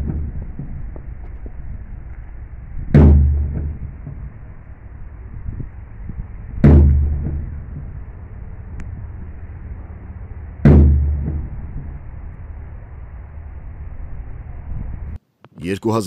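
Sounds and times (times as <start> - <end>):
steady low rumble: 0.0 - 15.2
heavy gun booms: 2.9 - 4.4, 6.6 - 8.0, 10.6 - 11.7.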